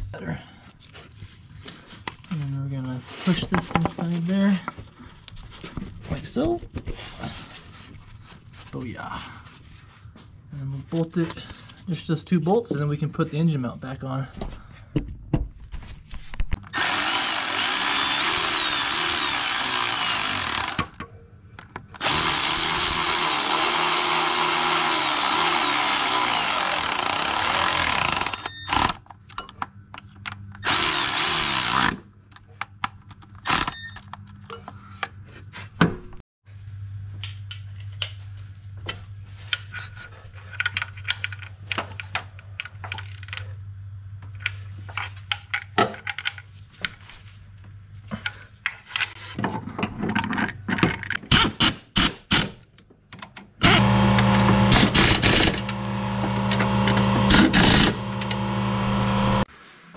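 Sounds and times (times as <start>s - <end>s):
power tool driving bolts: 16.7s - 21.0s, 22.0s - 29.1s, 30.6s - 32.0s, 33.4s - 33.9s, 51.1s - 52.6s, 53.6s - 59.5s
steady low hum: 53.6s - 59.5s.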